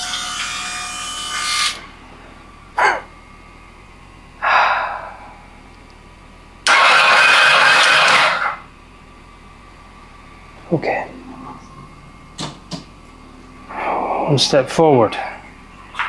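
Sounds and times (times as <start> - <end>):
steady electric buzz: 0.0 - 16.0
electric starter cranking engine: 6.6 - 8.7.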